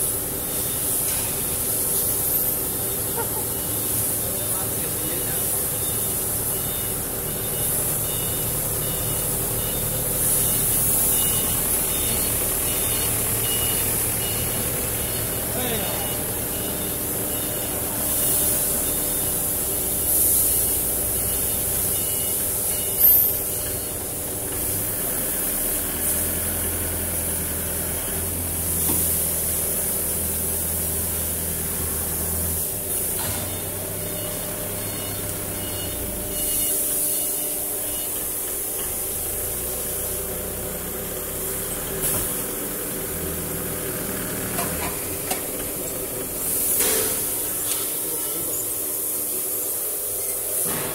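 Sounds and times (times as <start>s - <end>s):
machinery humming: 0.0s - 50.9s
faint electronic beep: 3.4s - 24.0s, 32.9s - 38.3s.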